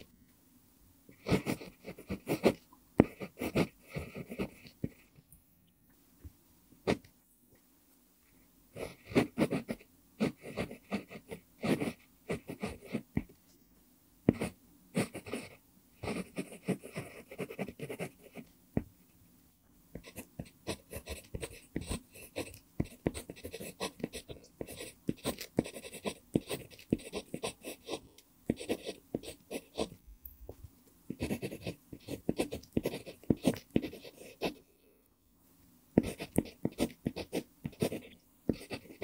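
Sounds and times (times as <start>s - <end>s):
pencil scratching on paper: 1.2s - 5.1s, 8.8s - 13.3s, 14.3s - 18.5s, 20.0s - 30.0s, 31.1s - 34.7s, 36.0s - 39.0s.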